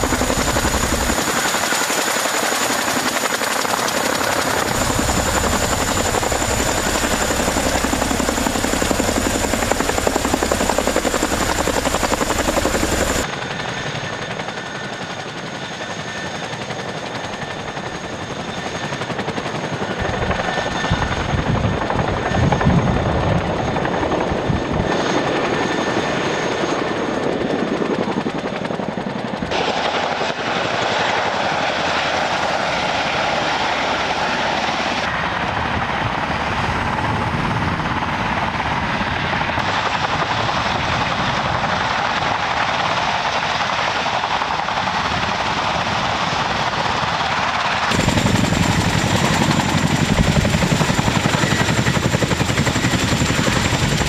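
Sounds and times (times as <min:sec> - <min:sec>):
turbine whine: 0:00.0 - 0:13.4
helicopter rotors thudding: 0:00.0 - 0:13.6, 0:16.5 - 0:54.0.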